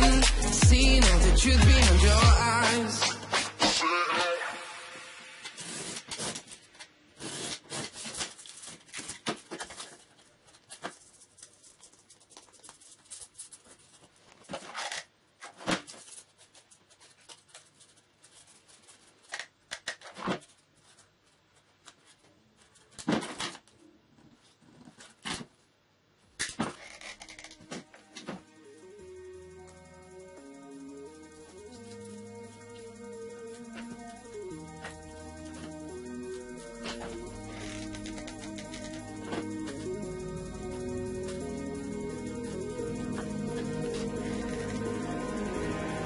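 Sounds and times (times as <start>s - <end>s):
cardboard rustling: 5.5s - 25.6s
tools tapping and clicking: 31.6s - 44.9s.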